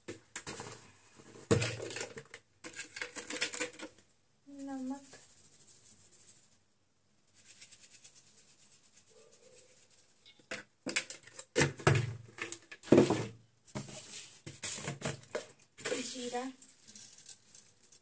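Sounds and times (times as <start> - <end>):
salt sprinkling into steel bowl: 4.5 - 6.6, 7.3 - 10.4, 15.8 - 18.0
plastic spoon scraping container: 12.4 - 17.2.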